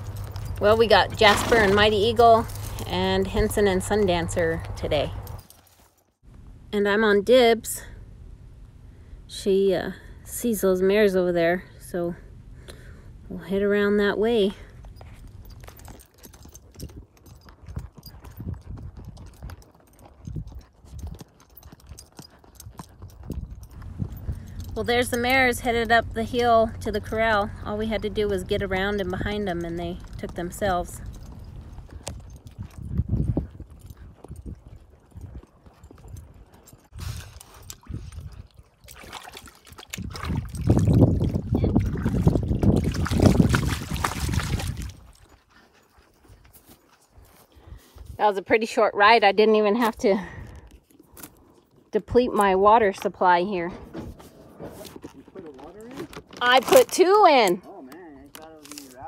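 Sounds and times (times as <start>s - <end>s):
horse hoofbeats on sandy dirt: 0.0s - 6.0s, 14.4s - 57.7s
dog lapping water: 37.3s - 45.3s.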